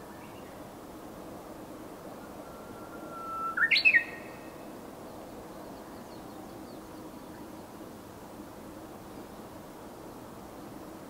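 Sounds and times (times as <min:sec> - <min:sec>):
bird singing: 0:02.2 - 0:04.7.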